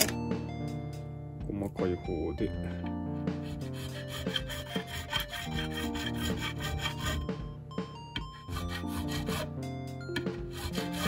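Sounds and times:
background music: 0:00.0 - 0:11.0
file rasping on metal fret: 0:03.2 - 0:11.0.

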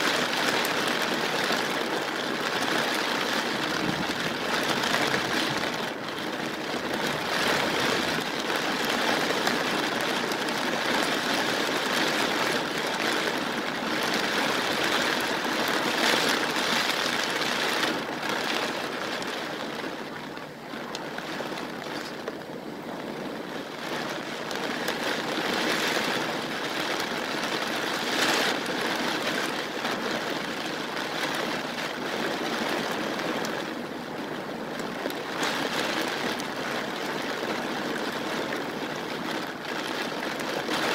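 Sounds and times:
strong gusting wind: 0:00.0 - 0:30.4
heavy rain: 0:00.0 - 0:40.9.

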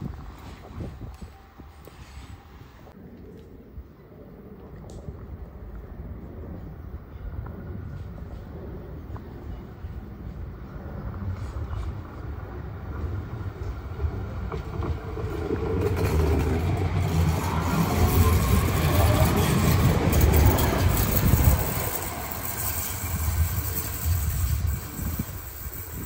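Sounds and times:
tram wheels rumbling on rails: 0:04.4 - 0:26.0.

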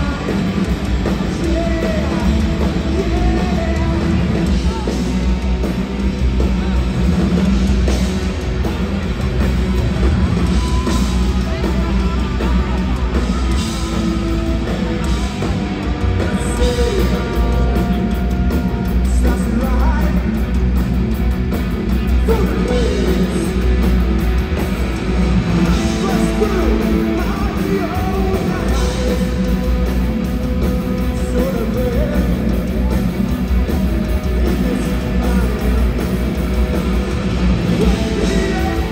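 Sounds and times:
punk rock band playing: 0:00.0 - 0:38.9
person singing: 0:16.0 - 0:20.5, 0:22.1 - 0:23.6, 0:25.6 - 0:36.6, 0:37.7 - 0:38.9.

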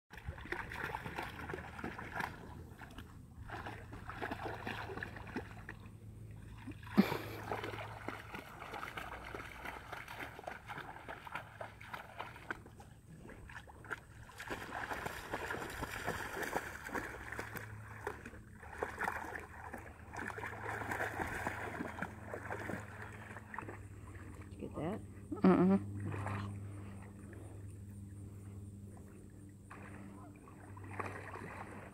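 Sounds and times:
dogs splashing in water: 0:00.1 - 0:24.7, 0:28.8 - 0:31.9.

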